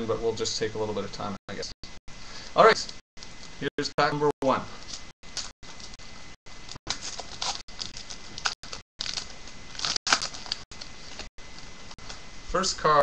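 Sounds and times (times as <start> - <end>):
wrapper tearing and crinkling: 6.9 - 11.3.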